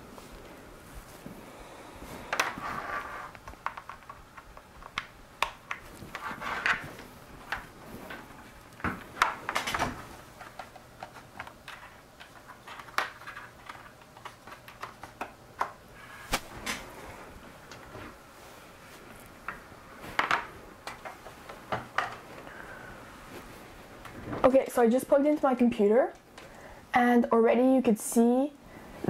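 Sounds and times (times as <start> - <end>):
rustles of handling: 0.1 - 4.1.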